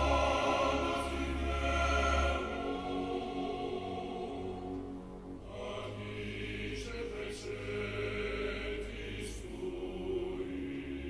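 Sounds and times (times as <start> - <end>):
slow music with deep bass: 0.0 - 11.0.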